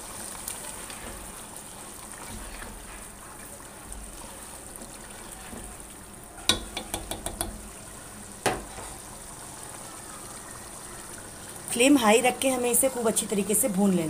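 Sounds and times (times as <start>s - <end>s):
curry bubbling in a pot: 0.0s - 13.7s
spatula knocking against pot: 6.5s - 7.6s, 8.4s - 8.8s.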